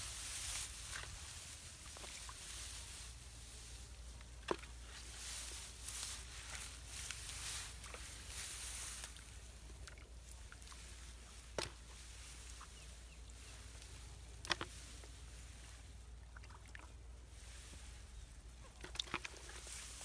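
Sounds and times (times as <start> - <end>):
hands sloshing in muddy water: 18.5 - 20.0.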